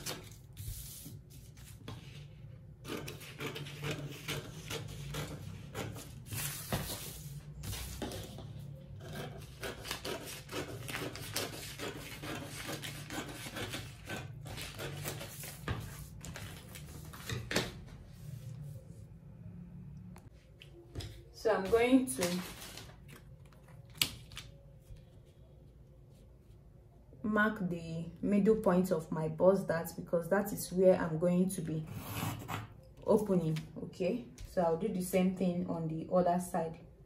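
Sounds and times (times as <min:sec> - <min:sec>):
paper rustling on table: 0:00.0 - 0:02.3, 0:05.9 - 0:08.5, 0:22.1 - 0:25.0
scissors snipping paper: 0:09.1 - 0:15.3.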